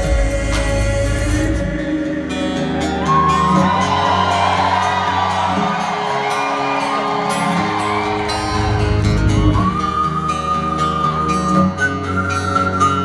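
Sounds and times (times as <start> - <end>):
bass and drums: 0.0 - 2.2
acoustic guitar strumming: 0.0 - 13.0
crowd whooping and cheering: 2.4 - 13.0.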